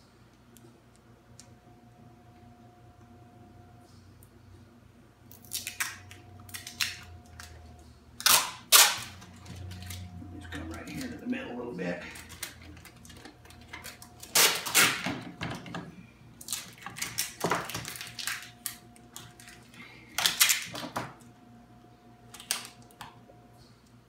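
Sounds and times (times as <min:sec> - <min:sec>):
packing tape ripping off roll: 0:08.2 - 0:10.1, 0:12.1 - 0:15.3, 0:16.4 - 0:19.6, 0:20.2 - 0:21.0, 0:22.3 - 0:22.9.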